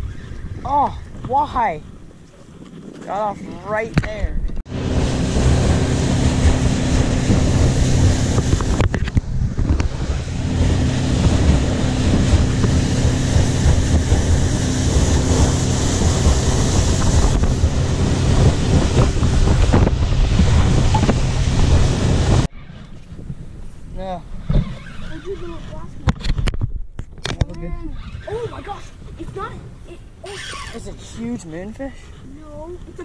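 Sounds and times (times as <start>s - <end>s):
wind buffeting microphone: 0.0s - 33.0s
boat engine drone: 4.7s - 22.7s
water rushing past hull: 4.7s - 26.1s.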